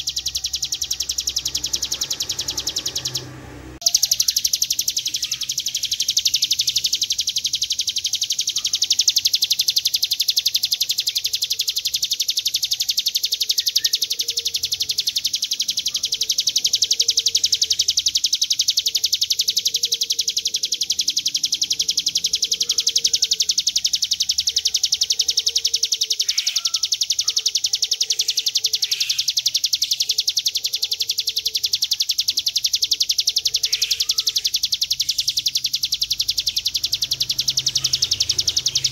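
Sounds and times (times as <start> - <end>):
bird buzzing trill: 0.0 - 38.9
faint bird chirps: 0.0 - 38.9.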